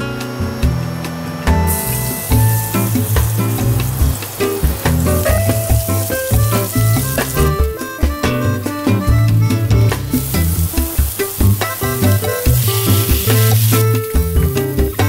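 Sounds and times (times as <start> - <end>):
background music with bass line: 0.0 - 15.0
garlic sizzling in hot oil: 1.7 - 9.0, 9.6 - 15.0.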